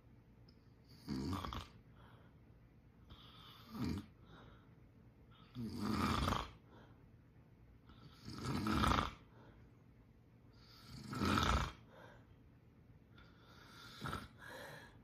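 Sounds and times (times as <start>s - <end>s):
man snoring: 0.9s - 1.8s, 3.2s - 4.1s, 5.5s - 6.6s, 8.0s - 9.3s, 10.6s - 11.9s, 13.5s - 14.5s.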